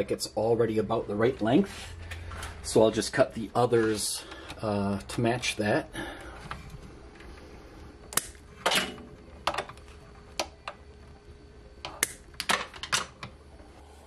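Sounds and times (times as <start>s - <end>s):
wire cutters snipping: 8.1s - 8.4s.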